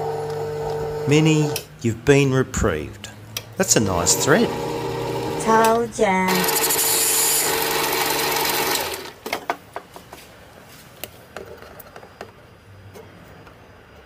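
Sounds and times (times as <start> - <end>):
lathe whirring: 3.7 - 9.2.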